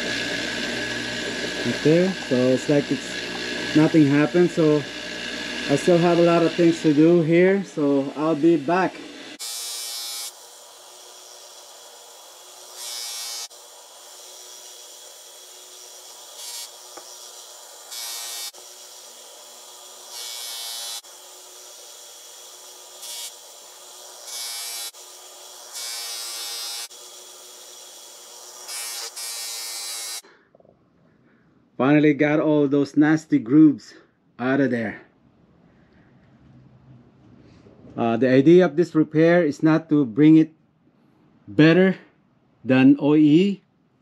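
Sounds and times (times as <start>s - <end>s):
metal scraping on grinding wheel: 0.0s - 9.4s
bench grinder motor running: 0.0s - 30.2s.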